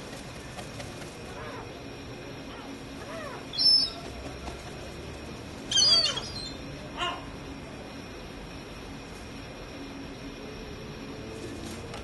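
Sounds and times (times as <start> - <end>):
gulls calling: 0.0 - 7.6.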